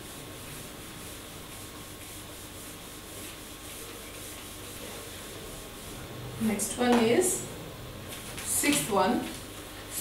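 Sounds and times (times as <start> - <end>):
eraser wiping whiteboard: 0.0 - 7.5.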